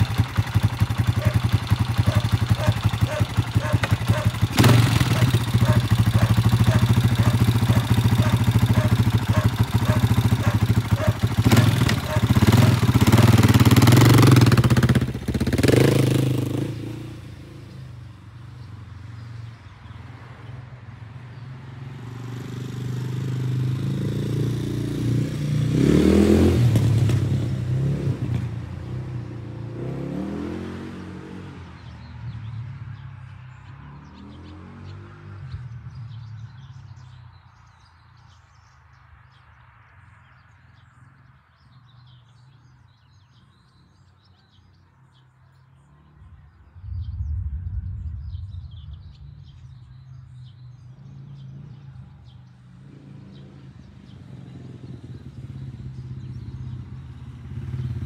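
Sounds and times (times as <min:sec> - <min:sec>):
motorcycle engine idling: 0:00.0 - 0:19.3, 0:54.8 - 0:58.0
motorcycle revving and passing: 0:00.0 - 0:58.0.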